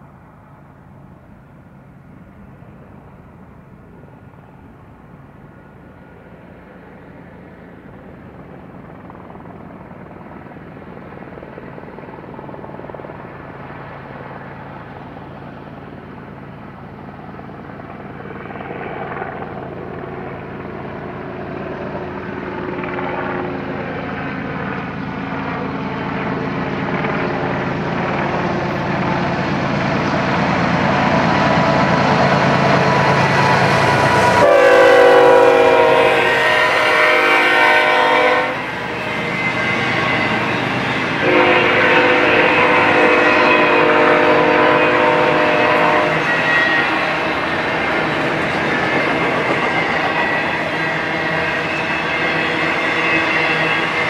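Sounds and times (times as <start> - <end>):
diesel locomotive engine drone: 0.0 - 54.0
multi-tone air horn blast: 33.6 - 47.4.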